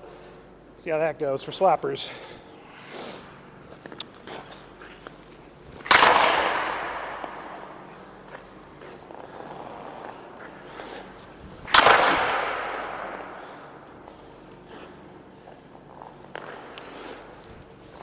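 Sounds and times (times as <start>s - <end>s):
hockey stick hitting puck: 5.7s - 14.0s
arena echo: 5.7s - 17.6s.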